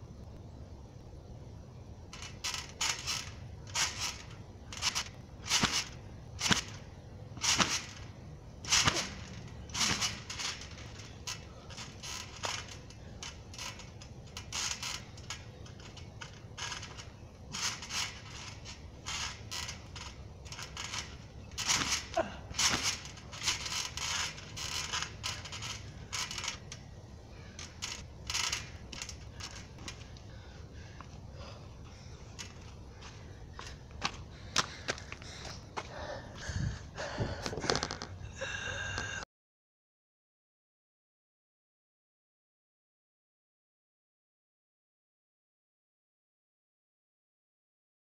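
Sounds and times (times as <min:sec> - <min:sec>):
trampoline springs creaking: 0:00.1 - 0:39.2
landing thuds: 0:02.1 - 0:26.8.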